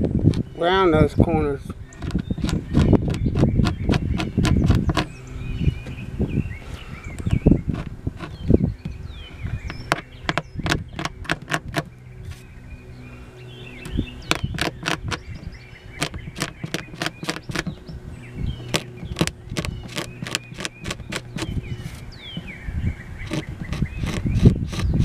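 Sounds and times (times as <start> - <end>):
scraper scratching wood: 1.9 - 5.2, 7.2 - 8.6, 9.3 - 12.5, 13.8 - 18.0, 18.6 - 22.5, 23.2 - 25.0.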